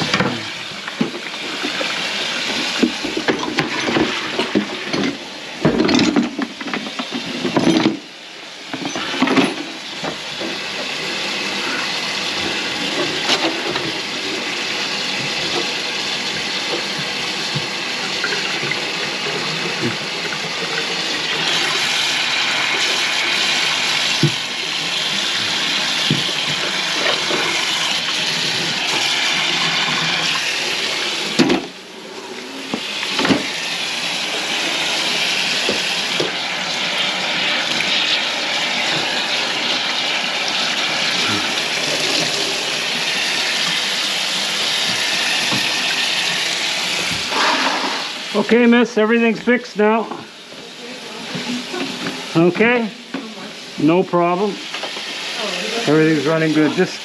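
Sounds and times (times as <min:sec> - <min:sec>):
faucet running into steel sink: 0:08.6 - 0:49.3.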